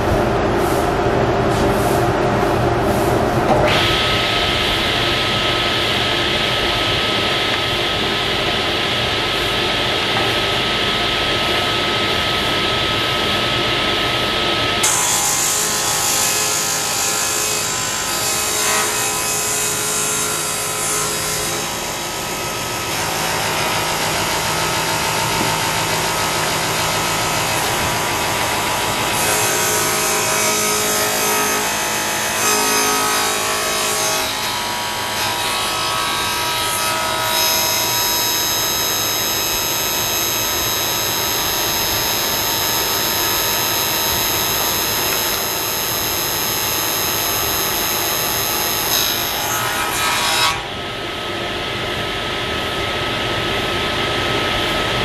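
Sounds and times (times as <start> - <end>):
table saw ripping wood: 22.8 - 50.6.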